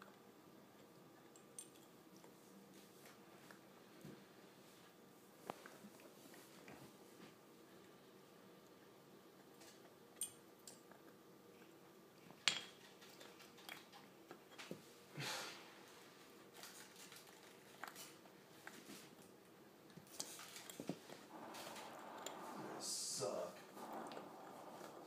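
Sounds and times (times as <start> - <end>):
puppy gnawing on antler: 8.7 - 14.6, 16.5 - 22.5.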